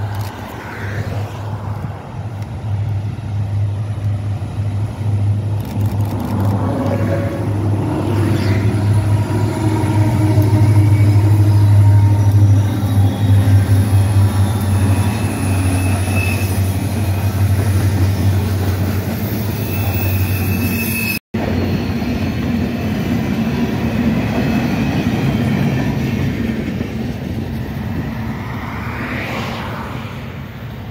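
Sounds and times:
freight cars rumbling on rails: 0.0s - 20.7s
diesel locomotive engines humming: 0.0s - 29.0s
wheel squeal: 8.1s - 17.5s, 19.1s - 22.6s.

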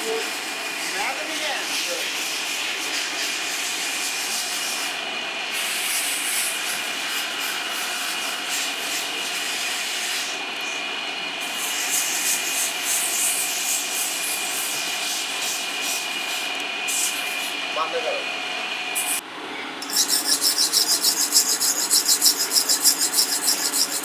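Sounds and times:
steady background whine: 0.0s - 24.0s
abrasive tool scraping rubber: 19.8s - 24.0s.

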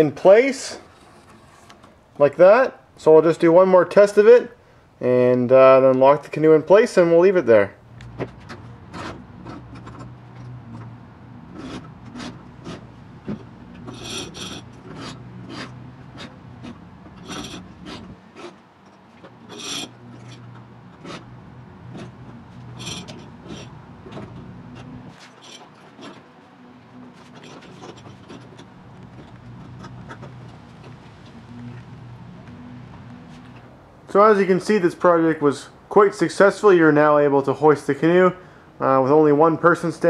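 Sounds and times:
rope rasping through pulleys: 0.7s - 1.9s, 8.2s - 33.6s
short high squeaks: 19.4s - 21.3s, 22.0s - 26.3s.

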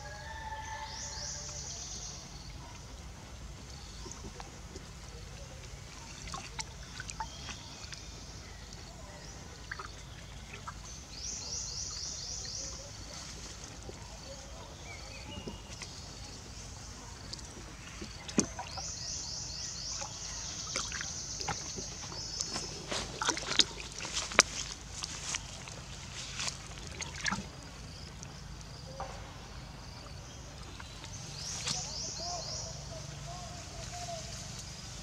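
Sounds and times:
water splashing in plastic tub: 3.8s - 11.2s, 17.2s - 19.0s, 19.7s - 28.5s.

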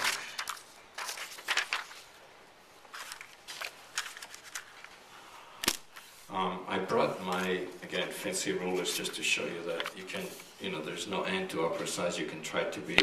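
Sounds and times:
paper rustling and sliding: 0.0s - 5.0s, 5.9s - 6.3s, 8.6s - 10.8s.

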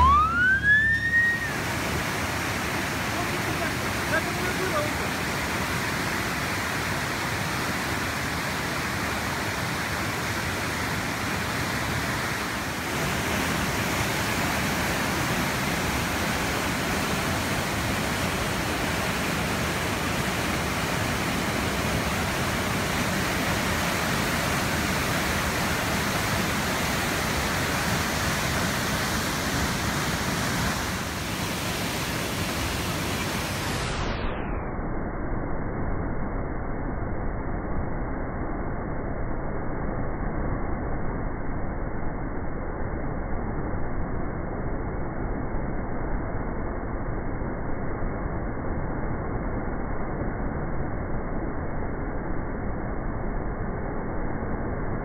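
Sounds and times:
flooded river rushing: 0.0s - 34.0s.

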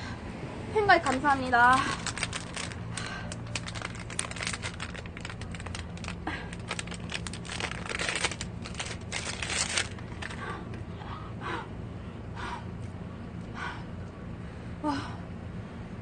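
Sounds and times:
plastic wrapper crinkling: 1.0s - 10.4s.

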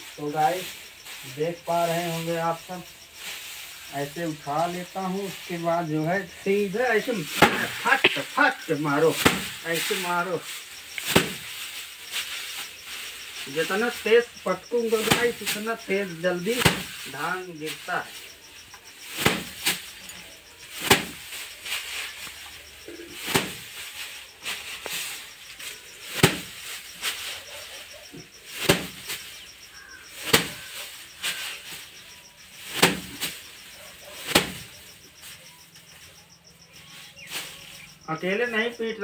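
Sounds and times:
straw and grain rustling: 0.0s - 39.0s
paddy bundles whacking wooden bench: 3.2s - 18.3s, 19.0s - 20.0s, 20.6s - 27.4s, 28.5s - 35.4s.

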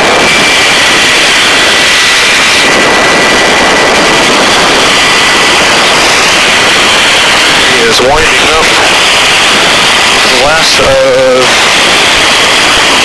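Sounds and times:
helicopter turbine and rotor noise: 0.0s - 13.0s
thin high whine: 0.0s - 13.0s.

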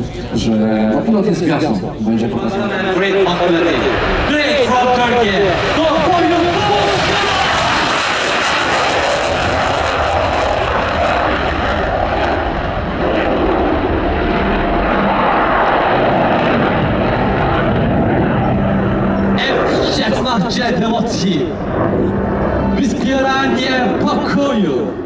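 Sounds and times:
jet engine roaring: 0.0s - 25.0s.

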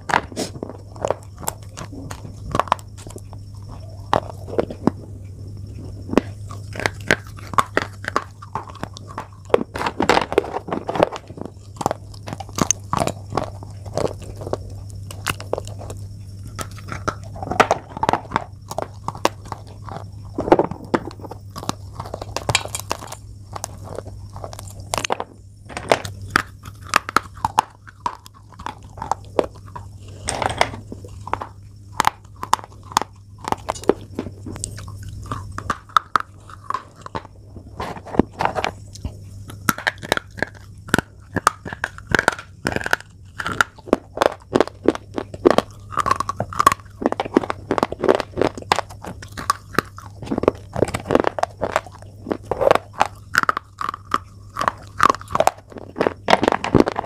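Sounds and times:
chalk crunching while chewed: 0.0s - 57.0s
low steady hum: 0.0s - 57.0s.

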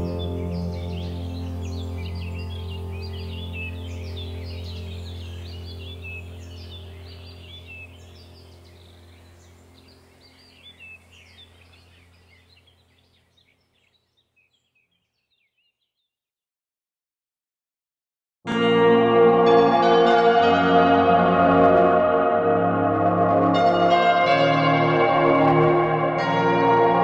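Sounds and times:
ambient music drone: 0.0s - 13.2s, 18.5s - 27.0s
birdsong chirping: 0.0s - 16.2s.

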